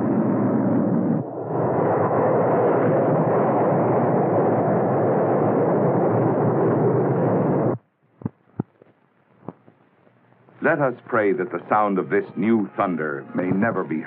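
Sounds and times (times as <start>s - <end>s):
rocket engine roaring: 0.0s - 7.8s, 10.6s - 14.0s.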